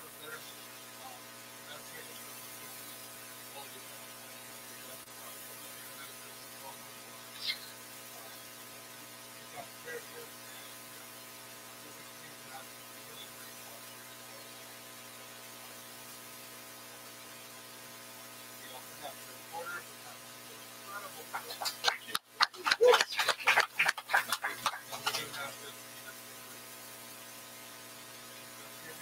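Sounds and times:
electrical mains hum: 0:00.0 - 0:29.0.

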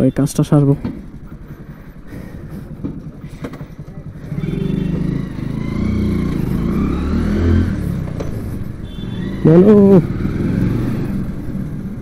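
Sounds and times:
street traffic noise: 0:00.0 - 0:12.0
motorcycle engine running: 0:00.1 - 0:12.0
vehicle horn blast: 0:04.3 - 0:05.2, 0:08.8 - 0:09.4.

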